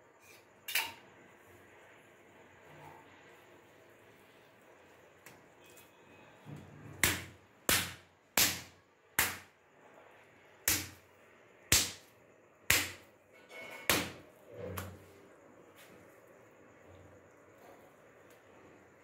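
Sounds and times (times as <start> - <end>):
dough slapped onto stone: 7.0 - 9.5, 10.6 - 11.0, 11.7 - 12.1, 12.7 - 13.1.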